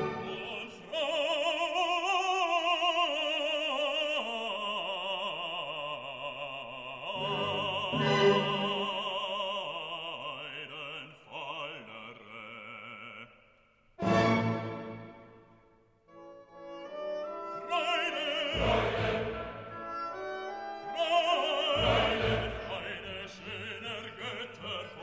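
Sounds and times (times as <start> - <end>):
orchestra playing: 0.0 - 0.7, 7.2 - 9.0, 14.0 - 15.4, 16.6 - 23.0
operatic voice singing: 0.0 - 14.6, 17.2 - 25.0.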